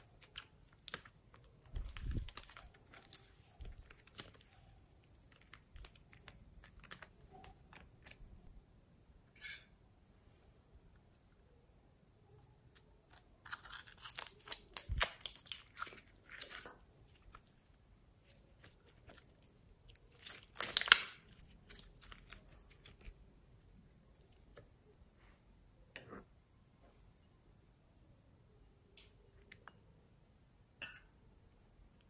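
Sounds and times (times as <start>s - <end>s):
slime crackling and popping: 0.0s - 8.2s, 13.2s - 23.2s.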